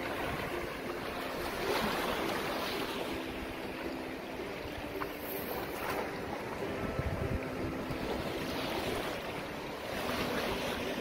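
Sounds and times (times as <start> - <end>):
wind on microphone: 4.5 - 11.0.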